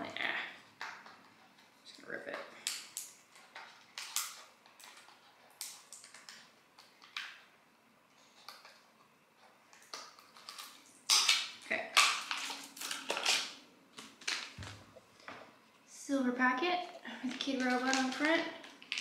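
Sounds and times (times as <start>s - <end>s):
cardboard packaging tearing: 10.3s - 14.7s.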